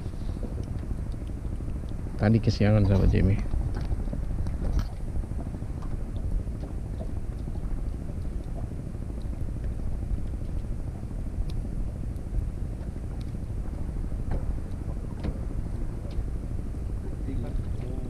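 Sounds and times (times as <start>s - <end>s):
boat engine low rumble: 0.0s - 18.0s
faint clicks: 11.4s - 12.3s, 13.1s - 13.4s.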